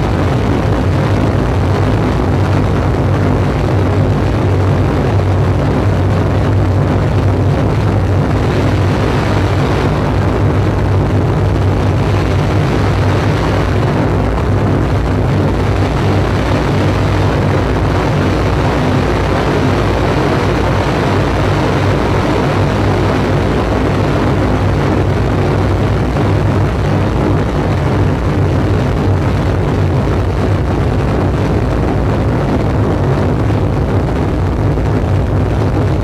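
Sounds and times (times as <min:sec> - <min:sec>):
electronic noise music drone: 0:00.0 - 0:36.0.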